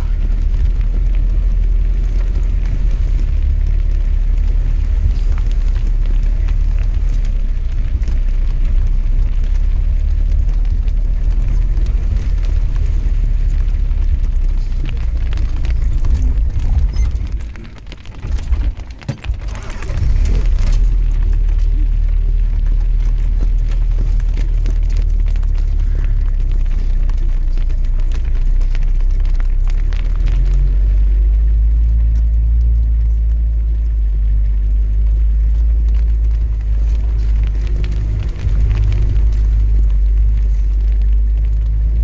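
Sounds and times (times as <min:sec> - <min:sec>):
engine and road rumble: 0:00.0 - 0:42.0
rattles and knocks: 0:10.2 - 0:21.8.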